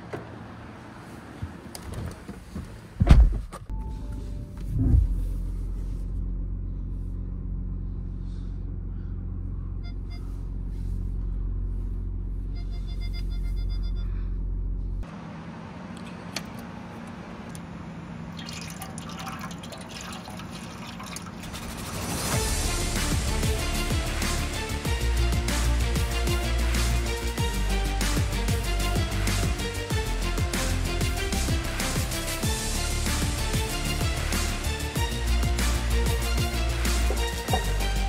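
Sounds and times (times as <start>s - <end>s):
diesel engine idling: 3.7s - 18.4s, 21.7s - 38.0s
short electronic beeps: 9.8s - 10.4s, 12.5s - 14.1s
oil pouring out: 18.3s - 22.4s.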